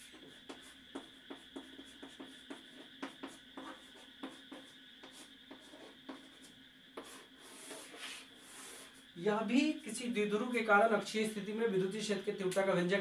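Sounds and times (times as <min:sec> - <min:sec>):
chalk tapping and scratching: 0:00.0 - 0:09.1
faint steady hum: 0:00.0 - 0:13.0.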